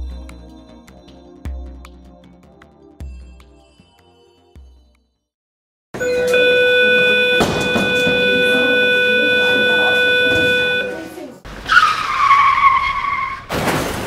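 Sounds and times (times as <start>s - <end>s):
alarm ringing: 6.0s - 11.2s.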